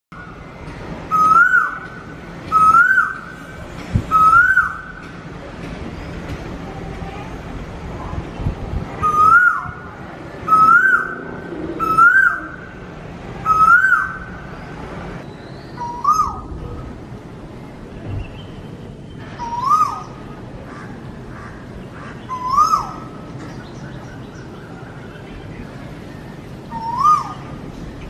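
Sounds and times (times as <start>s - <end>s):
cuckoo calling: 1.1s - 5.1s, 9.0s - 9.9s, 10.5s - 12.8s, 13.4s - 14.4s, 15.3s - 16.6s, 19.2s - 20.3s, 22.2s - 25.2s, 26.7s - 27.6s.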